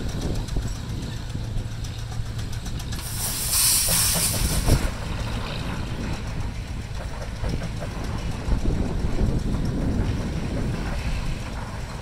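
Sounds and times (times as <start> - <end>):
steam engine running: 0.0 - 12.0
loud steam hiss: 2.9 - 6.9.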